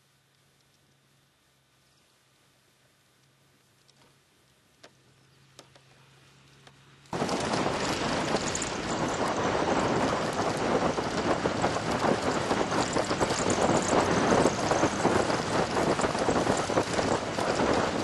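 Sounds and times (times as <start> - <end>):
vehicle driving on gravel track: 6.4 - 18.0.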